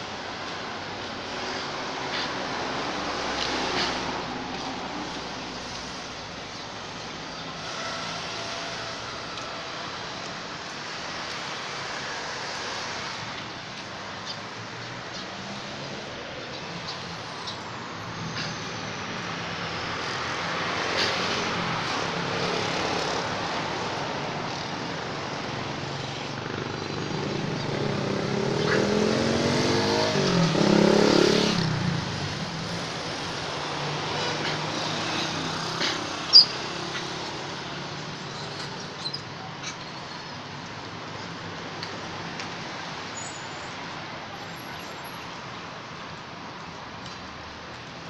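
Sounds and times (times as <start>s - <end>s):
traffic hum: 0.0s - 48.0s
vehicle engine passing: 26.4s - 37.1s.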